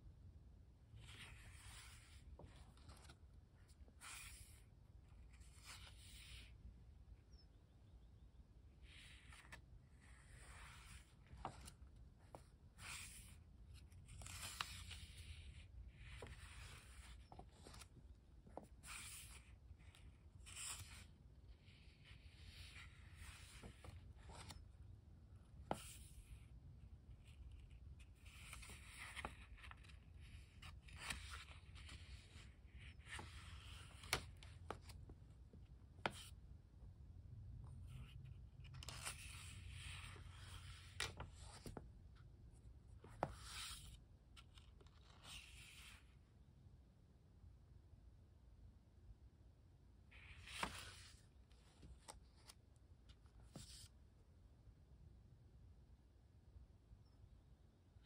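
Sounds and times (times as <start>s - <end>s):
sketchbook pages turning: 0.9s - 6.7s, 8.6s - 26.4s, 27.0s - 36.6s, 37.3s - 46.2s, 50.1s - 54.0s.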